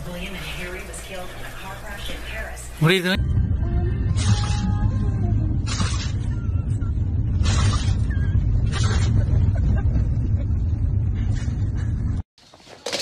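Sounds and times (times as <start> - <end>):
road rumble inside car: 3.2 - 12.2.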